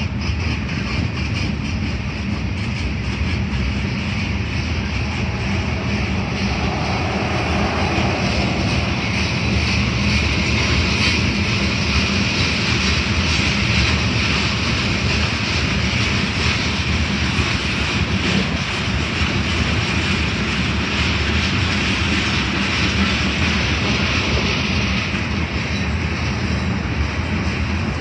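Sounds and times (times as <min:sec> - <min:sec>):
freight train wheels rumbling on rails: 0:00.0 - 0:28.0.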